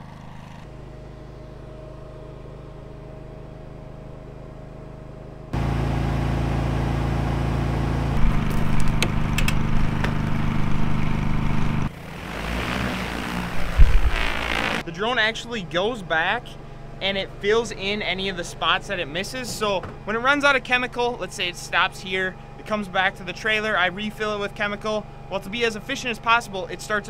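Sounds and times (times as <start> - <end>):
machine humming: 0.0 - 14.9.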